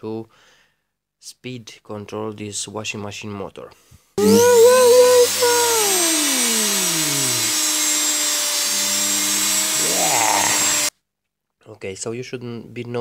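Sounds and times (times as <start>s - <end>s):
washing machine motor whining: 4.2s - 10.9s.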